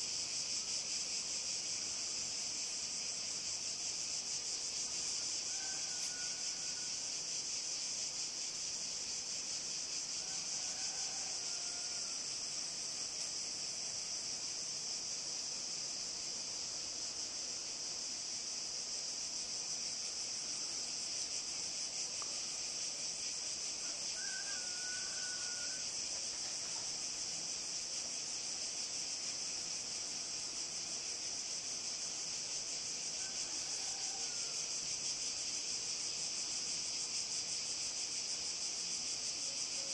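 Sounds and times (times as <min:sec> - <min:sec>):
insects chorus: 0:00.0 - 0:39.9.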